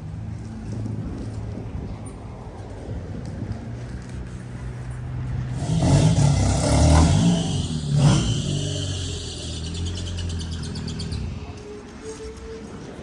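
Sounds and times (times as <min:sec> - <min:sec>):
car engine revving: 0:05.5 - 0:10.4.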